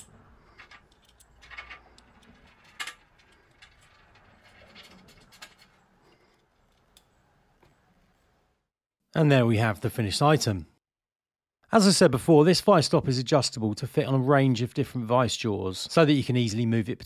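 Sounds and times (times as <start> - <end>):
small metal parts clicking: 0.0 - 7.1.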